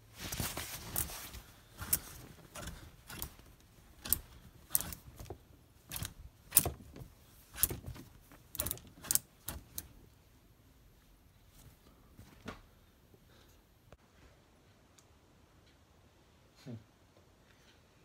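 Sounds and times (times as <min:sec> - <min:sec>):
fabric rustling: 0:00.0 - 0:13.0
clothes hangers clicking on rail: 0:00.3 - 0:10.0.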